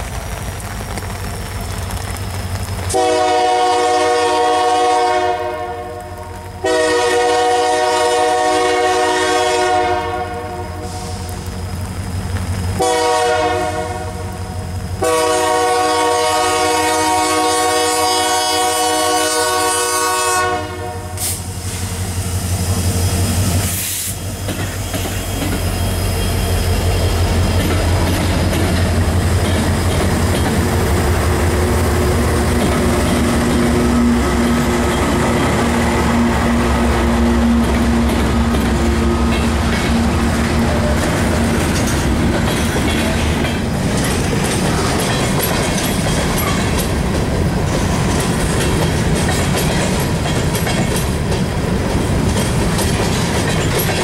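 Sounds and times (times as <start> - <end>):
locomotive air horn blasts: 2.9 - 11.2, 12.8 - 21.5
locomotive engine drone: 21.0 - 50.2
train wheels clickety-clack: 21.1 - 54.0.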